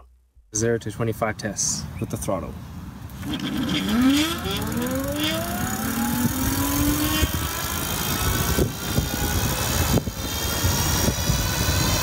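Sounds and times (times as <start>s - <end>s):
wind and road noise: 0.6s - 12.0s
electric bike motor whining: 3.2s - 12.0s.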